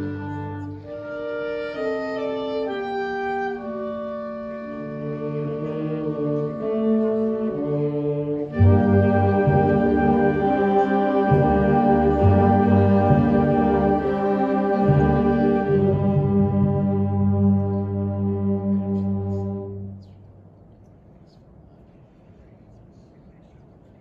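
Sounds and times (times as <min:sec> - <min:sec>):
concert band playing: 0:08.6 - 0:19.6.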